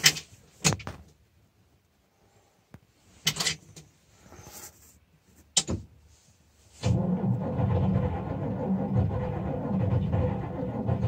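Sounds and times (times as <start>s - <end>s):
diesel engine running roughly: 6.8s - 11.0s.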